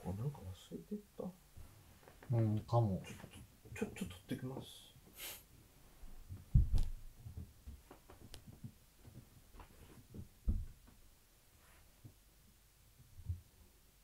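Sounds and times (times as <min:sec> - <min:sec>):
dull low thumps: 0:06.3 - 0:07.4.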